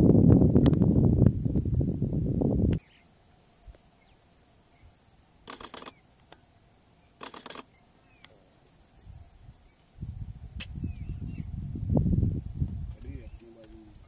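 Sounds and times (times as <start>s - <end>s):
camera shutter firing: 5.4s - 6.0s, 7.2s - 7.8s
camera shutter clicks: 5.5s - 6.4s, 7.2s - 7.8s.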